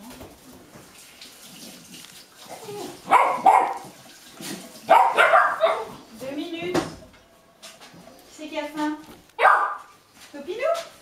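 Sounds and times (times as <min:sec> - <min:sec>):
puppies barking: 0:02.6 - 0:04.0, 0:04.8 - 0:06.1, 0:09.4 - 0:10.0.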